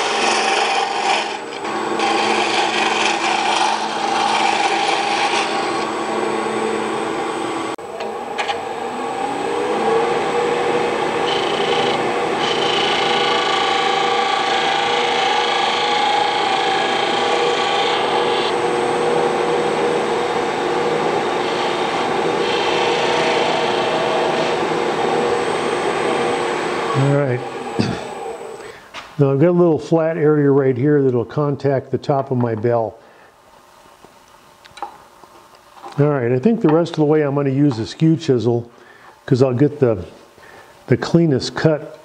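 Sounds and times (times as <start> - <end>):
turning tool scraping wood: 0.0 - 5.9, 11.2 - 18.6, 21.1 - 24.7
lathe humming: 0.0 - 28.7.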